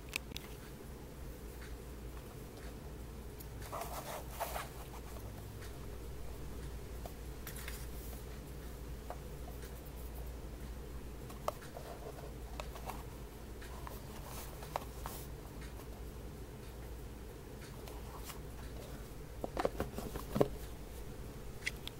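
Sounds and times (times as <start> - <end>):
steady low hum: 0.0 - 21.9
box rubbing and tapping: 19.4 - 20.6.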